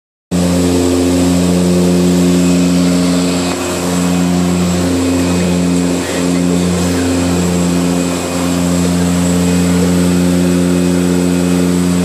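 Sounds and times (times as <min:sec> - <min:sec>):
high engine whine: 0:00.3 - 0:12.0
propeller plane cabin hum: 0:00.3 - 0:12.0.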